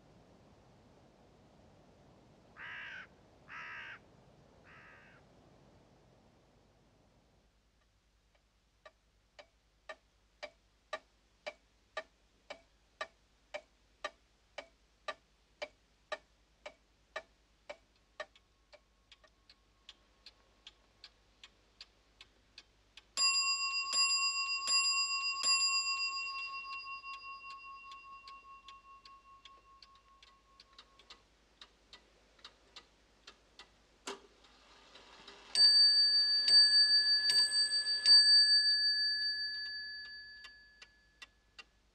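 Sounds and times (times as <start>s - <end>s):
clock ticking: 8.4s - 41.9s
clock chime striking: 23.2s - 30.2s, 35.6s - 40.6s
fainter quicker clock ticking: 25.9s - 38.3s.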